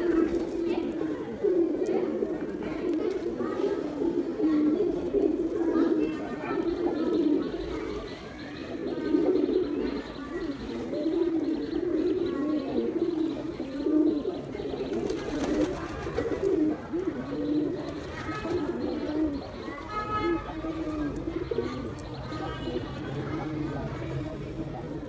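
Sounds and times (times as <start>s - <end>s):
pigeons cooing: 0.0s - 25.0s.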